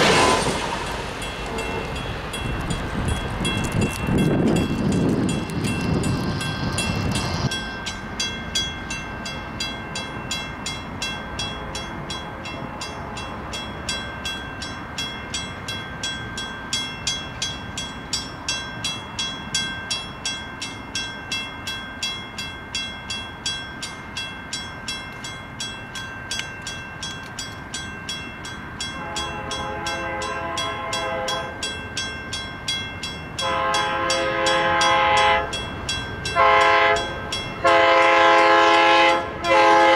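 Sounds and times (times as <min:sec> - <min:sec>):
crossing bell ringing: 0:00.0 - 0:39.9
distant locomotive horn: 0:01.4 - 0:02.0, 0:29.0 - 0:31.7, 0:33.4 - 0:35.6, 0:36.3 - 0:39.9.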